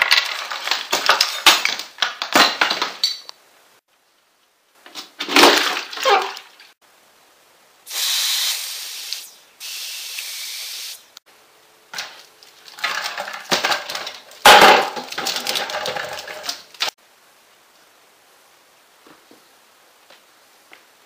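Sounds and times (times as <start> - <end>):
objects knocking and rustling: 0.0 - 3.3, 4.8 - 6.8, 11.9 - 17.0
aerosol can spraying: 7.9 - 11.1.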